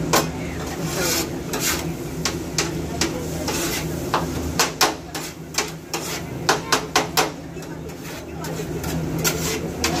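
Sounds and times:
metal spatula tapping on griddle: 1.5 - 7.7.

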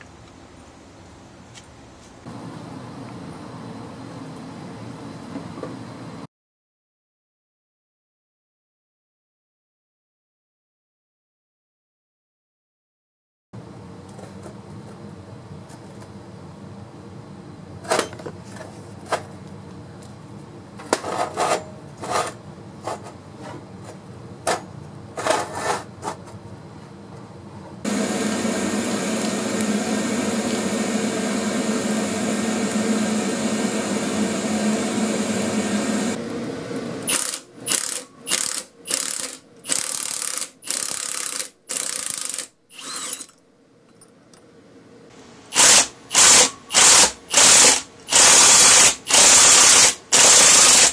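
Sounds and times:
welder arc hissing: 27.9 - 36.2, 45.4 - 50.9.

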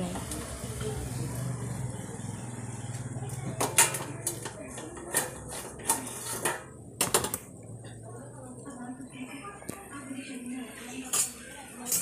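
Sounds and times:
gas burner hum: 0.0 - 9.0.

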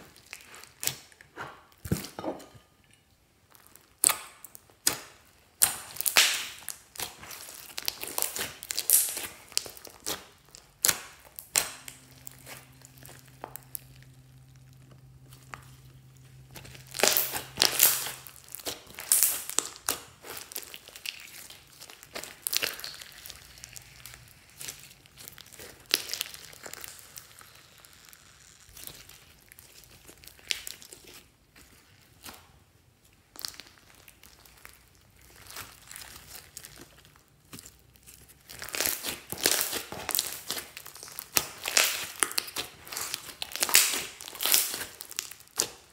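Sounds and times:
slime crackling and popping: 0.0 - 2.0, 3.5 - 45.9.

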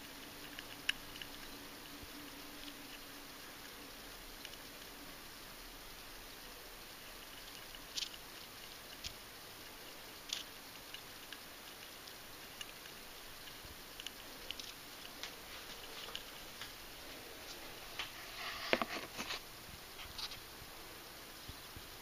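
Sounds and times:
faint steady hiss: 0.0 - 22.0
clicks and rustles of handling: 17.4 - 19.4.

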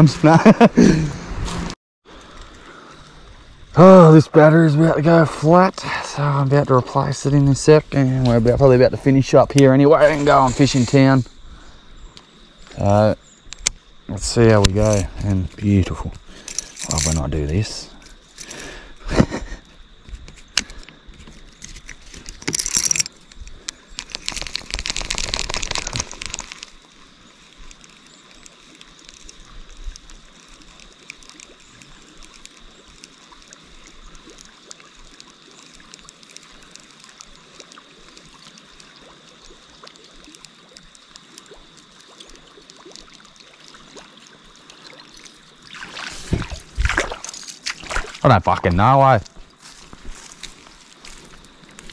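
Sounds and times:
flowing river water: 20.7 - 51.9
water splashing from wading: 32.8 - 48.6.

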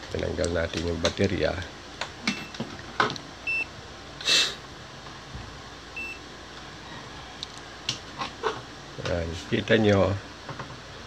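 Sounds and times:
multimeter high beeps: 3.4 - 3.7, 6.0 - 6.2.

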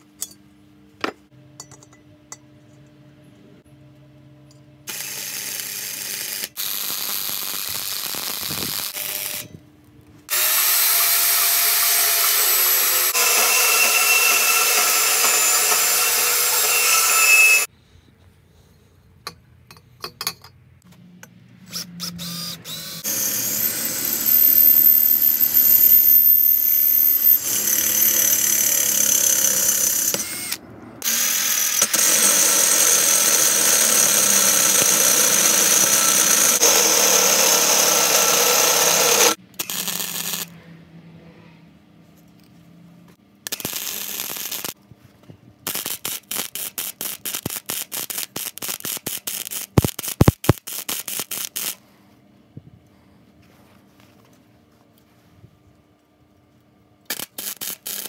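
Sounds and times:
power drill drilling steel pipe: 4.9 - 9.4, 10.3 - 17.7, 21.7 - 40.5.

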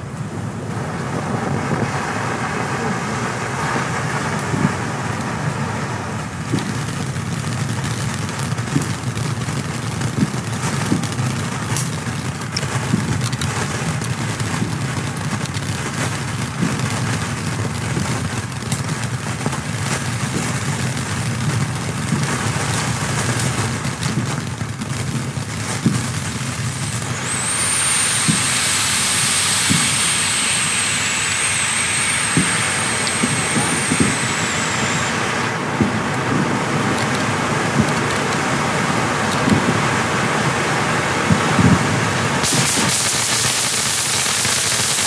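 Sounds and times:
firework fountain hissing: 0.0 - 45.0
crackling pops: 6.4 - 39.8, 42.4 - 45.0
high wavering whistle: 27.0 - 35.6.

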